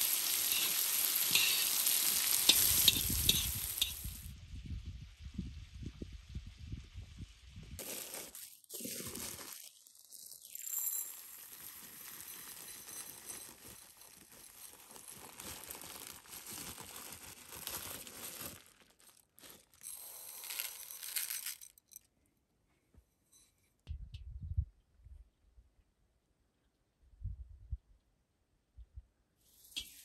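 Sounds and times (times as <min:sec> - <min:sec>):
plastic bag crinkling: 0:00.0 - 0:04.3, 0:07.8 - 0:22.0
rice pouring into a bowl: 0:00.0 - 0:04.3, 0:07.8 - 0:21.8.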